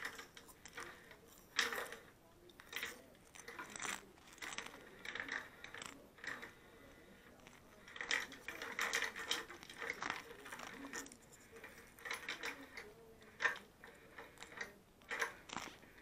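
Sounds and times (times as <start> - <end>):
plastic cat toy rattling: 0.0 - 6.6, 7.2 - 16.0.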